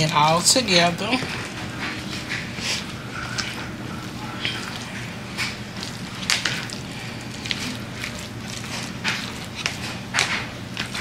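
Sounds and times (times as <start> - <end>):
steady low hum: 0.0 - 11.0
utensil scraping a mixing bowl: 0.0 - 11.0.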